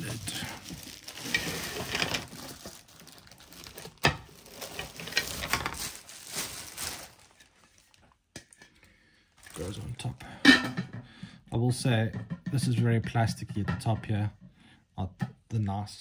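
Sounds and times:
plastic packaging crinkling: 0.0s - 8.2s, 9.4s - 10.2s.

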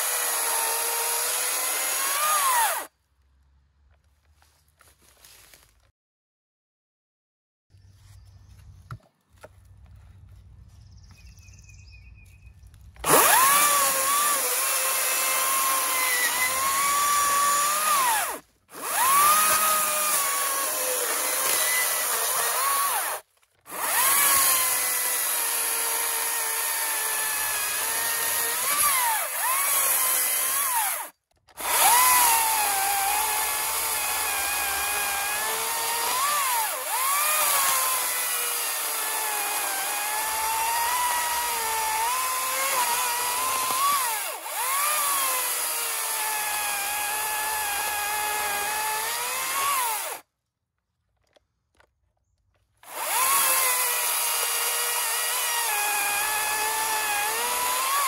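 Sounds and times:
chainsaw cutting wood: 0.0s - 2.9s, 13.0s - 50.3s, 52.8s - 58.0s.

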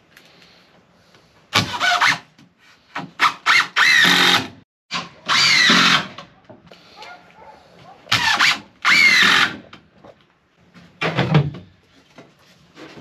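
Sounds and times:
cordless drill driving screws: 3.5s - 4.5s.

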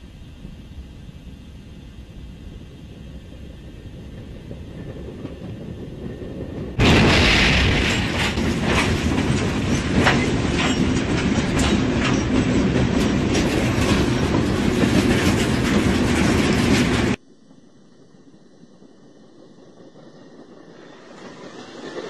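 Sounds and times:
heavy rumbling and grinding: 3.4s - 17.2s
train crash: 6.7s - 17.2s.

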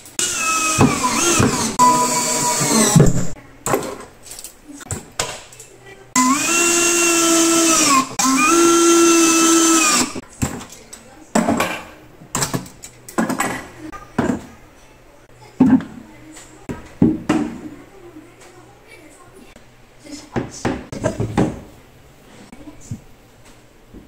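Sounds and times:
cordless drill driving screws: 0.2s - 3.1s, 6.2s - 10.2s.

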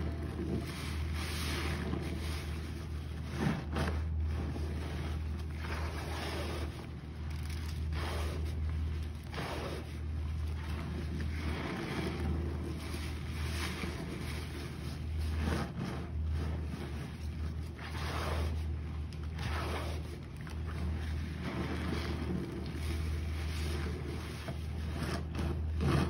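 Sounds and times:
sponge squelching and sloshing: 0.0s - 26.0s
steady low hum: 0.0s - 26.0s.

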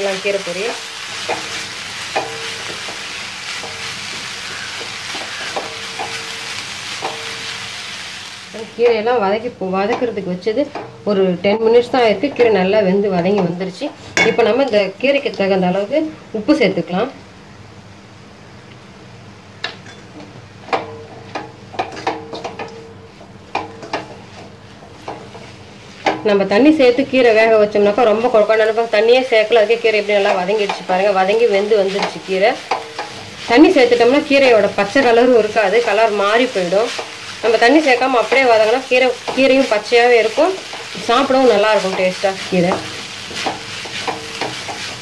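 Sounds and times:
greens sizzling in oil: 0.0s - 16.5s, 20.5s - 45.0s
wooden spatula scraping pan: 28.6s - 45.0s.

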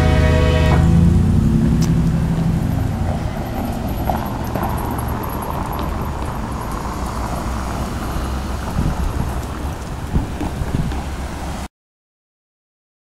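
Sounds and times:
low drone: 0.0s - 10.0s
freight train wheels rumbling: 0.0s - 11.7s.

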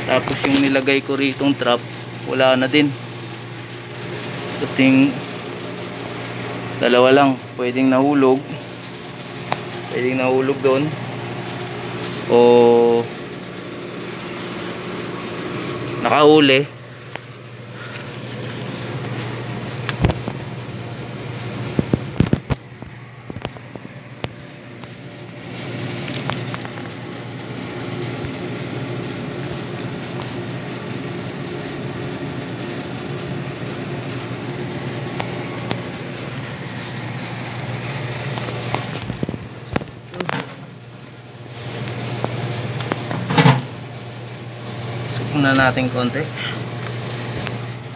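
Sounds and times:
steady low hum: 0.0s - 47.9s
sharp knocks and crackles: 18.0s - 20.5s, 21.6s - 27.0s, 34.3s - 40.7s, 41.6s - 43.8s.

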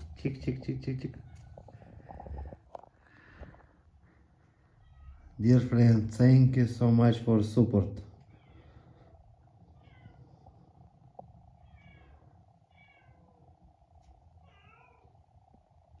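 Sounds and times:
low room hum: 0.0s - 16.0s
faint cat meows: 4.7s - 5.4s, 9.7s - 10.5s, 11.5s - 13.6s, 14.3s - 15.3s.

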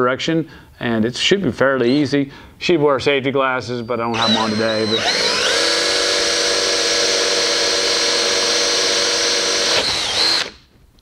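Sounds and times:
cordless drill motor whine: 4.1s - 10.6s.

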